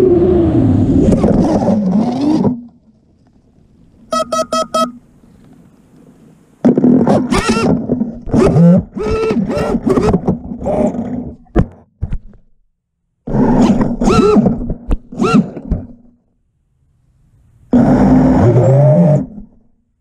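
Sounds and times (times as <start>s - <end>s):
drone motors revving: 0.0s - 2.7s, 7.1s - 11.3s, 13.3s - 15.7s, 17.7s - 19.4s.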